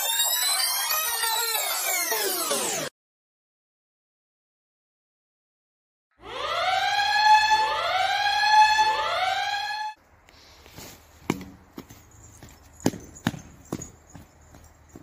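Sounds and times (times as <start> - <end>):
siren-like whoops: 0.0 - 2.6, 6.2 - 10.0.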